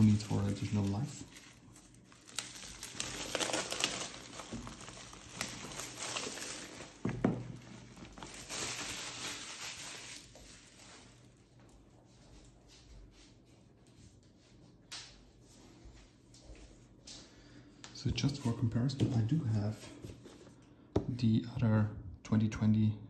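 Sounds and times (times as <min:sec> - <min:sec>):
plastic wrap crinkling: 0:00.0 - 0:12.5.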